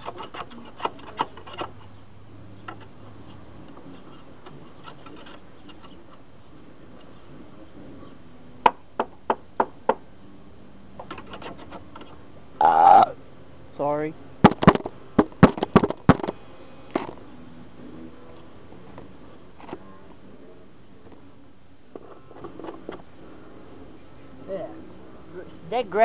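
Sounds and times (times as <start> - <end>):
tool scraping grass off metal: 0.0 - 2.0, 2.6 - 6.2, 11.0 - 12.2
sharp knocks: 14.4 - 16.4.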